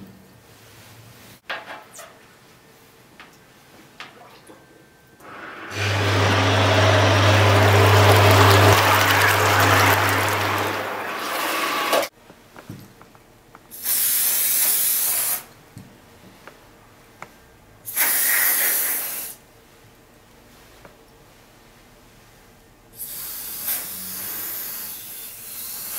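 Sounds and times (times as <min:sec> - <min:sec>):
electric hand tool running underwater: 0:05.2 - 0:12.1.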